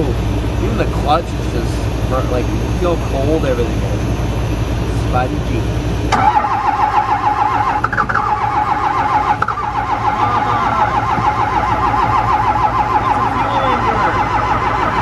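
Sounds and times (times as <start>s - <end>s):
diesel engine starter cranking: 5.7s - 15.0s.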